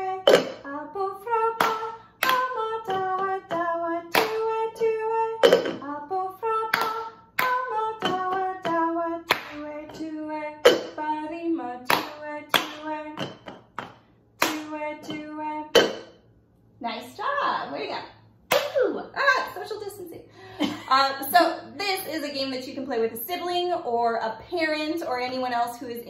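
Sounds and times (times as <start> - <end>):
people singing: 0.0 - 13.3
plastic cups tapped on wooden floor: 0.3 - 0.6, 5.4 - 5.8, 10.6 - 11.0, 12.0 - 16.1
hand claps: 1.6 - 2.5, 13.8 - 14.8.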